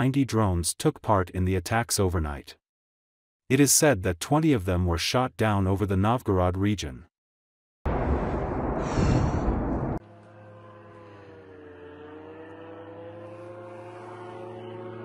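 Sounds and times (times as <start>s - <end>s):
loud rushing noise: 7.9s - 10.0s
drone engine droning: 7.9s - 15.0s.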